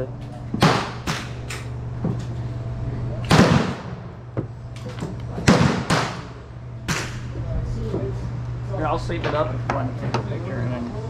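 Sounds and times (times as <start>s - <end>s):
gunshots with ringing tail: 3.3s - 4.1s.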